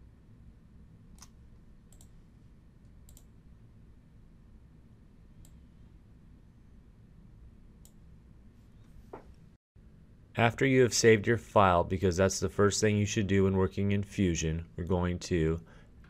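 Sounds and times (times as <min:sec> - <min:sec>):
low room hum: 0:00.0 - 0:16.0
computer mouse clicks: 0:01.1 - 0:02.2, 0:02.8 - 0:03.3, 0:05.4 - 0:05.6.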